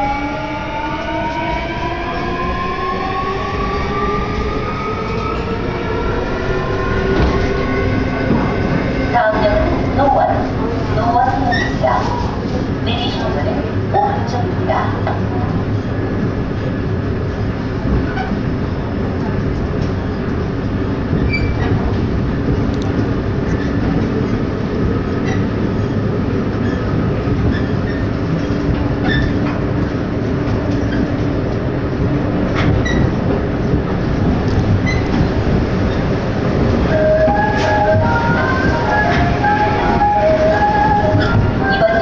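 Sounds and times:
train wheel and rail rumble: 0:00.0 - 0:42.0
wheel clicks and squeaks: 0:26.6 - 0:29.5.

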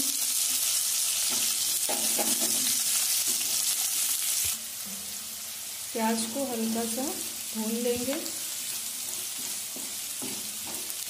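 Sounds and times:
onion sizzling in hot oil: 0:00.0 - 0:11.0
wooden spatula stirring: 0:08.0 - 0:11.0.

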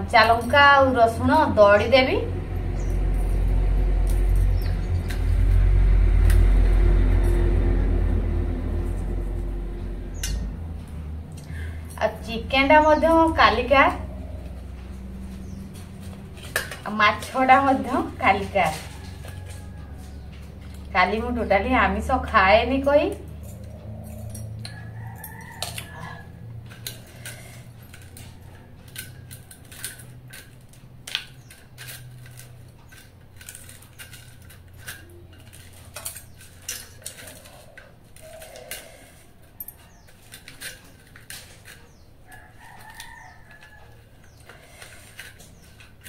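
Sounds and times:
distant chickens calling: 0:04.4 - 0:21.8, 0:23.2 - 0:29.6, 0:36.3 - 0:46.0
steel dishware and bangles clinking: 0:22.6 - 0:46.0.

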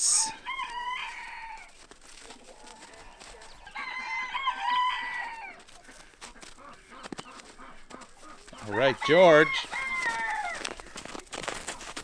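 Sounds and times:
rooster crowing: 0:00.2 - 0:01.9, 0:03.6 - 0:05.6, 0:08.7 - 0:10.7.

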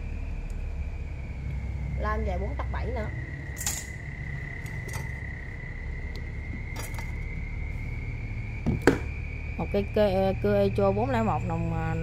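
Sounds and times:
high-pitched whine: 0:00.0 - 0:12.0
low hum: 0:00.0 - 0:12.0
metal clicks and clinks: 0:03.6 - 0:03.9.

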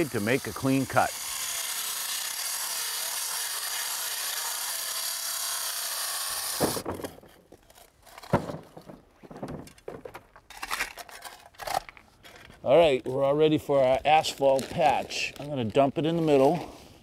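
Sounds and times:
shovels scraping asphalt: 0:00.0 - 0:01.2
wet saw cutting asphalt: 0:00.0 - 0:08.3.

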